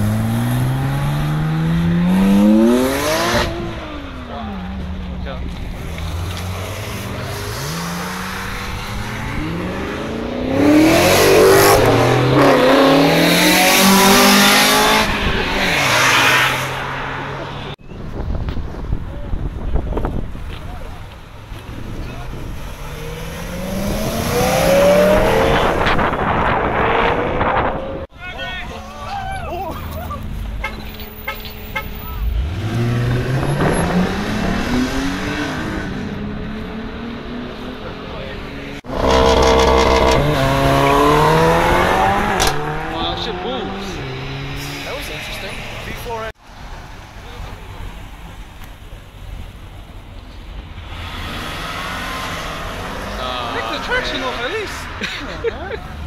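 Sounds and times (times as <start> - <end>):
car engine revving past: 0.0 - 4.0, 5.8 - 17.7, 22.6 - 28.0, 32.3 - 45.9, 50.9 - 55.0.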